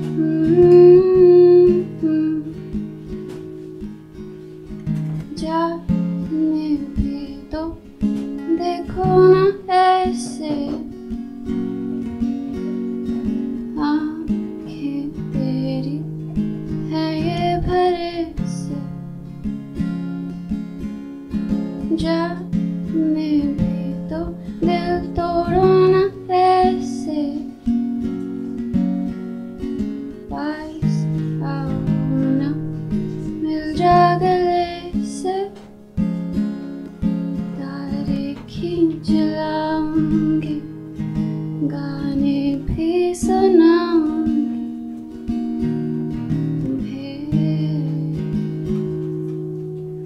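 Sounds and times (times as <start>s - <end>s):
woman singing: 0.0s - 3.3s, 5.2s - 11.6s, 13.2s - 19.1s, 21.8s - 27.9s, 30.2s - 35.7s, 37.0s - 48.8s
acoustic guitar playing: 0.0s - 50.0s.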